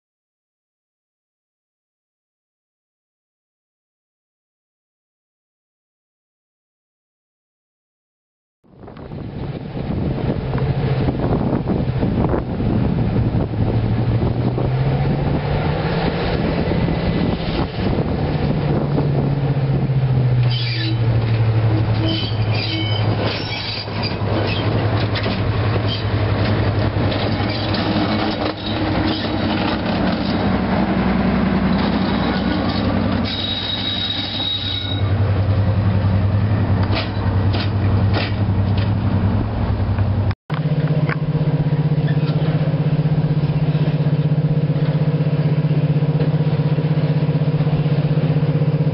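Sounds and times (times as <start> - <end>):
diesel locomotive engines running: 8.7 - 48.9
thin wheel squeal: 20.4 - 21.1, 21.7 - 26.1, 27.3 - 29.6, 32.7 - 35.2
wheels clicking over rail joints: 20.4 - 39.2, 39.9 - 48.9.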